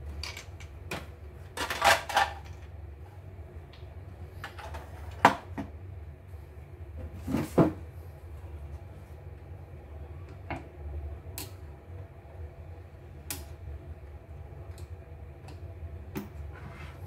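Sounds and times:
steady low hum: 0.0 - 17.0
plastic parts clattering on wood: 1.6 - 2.6.

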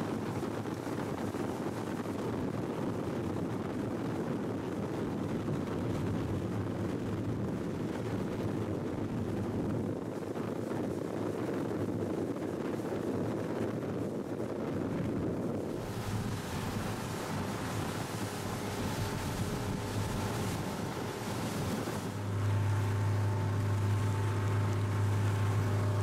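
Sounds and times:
motorboat engine rumble: 0.0 - 26.0
wind buffeting microphone: 0.0 - 26.0
water rushing past hull: 14.0 - 26.0.

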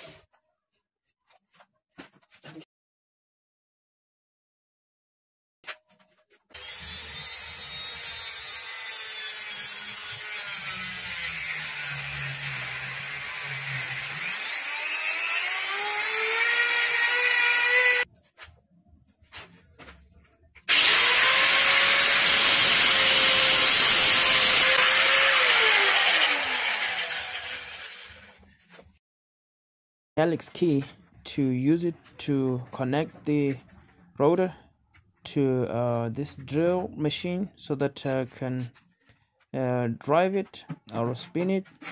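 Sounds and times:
electric drill motor whine: 6.6 - 18.1, 20.7 - 28.4
power tool running: 6.6 - 18.1, 20.7 - 28.4.

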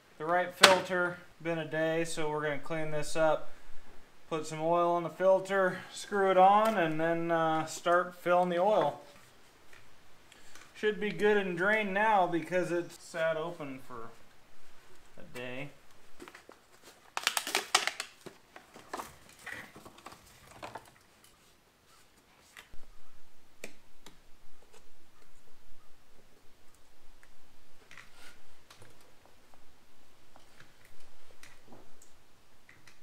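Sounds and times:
packaging rustling: 16.0 - 21.0.

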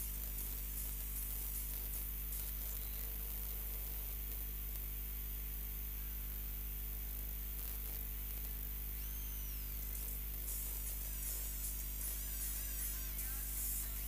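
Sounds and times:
electrical mains hum and hiss: 0.0 - 14.0
faint high gliding whistle: 9.0 - 9.7.

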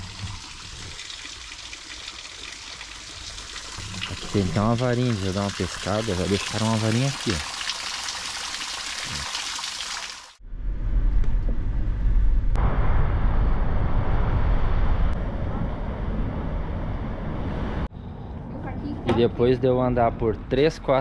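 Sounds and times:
water rushing: 0.0 - 10.4.

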